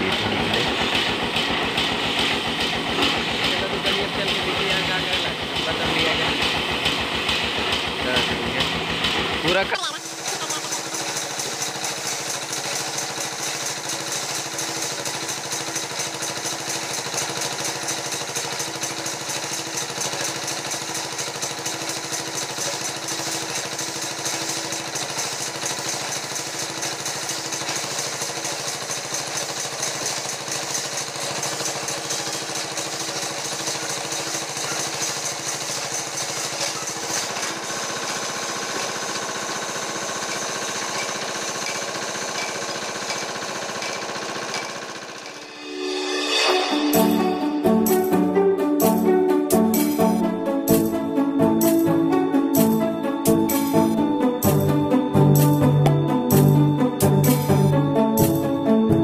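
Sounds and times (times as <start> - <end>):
machinery hum: 0.0 - 12.1, 36.6 - 59.0
sawmill machinery clatter: 0.0 - 59.0.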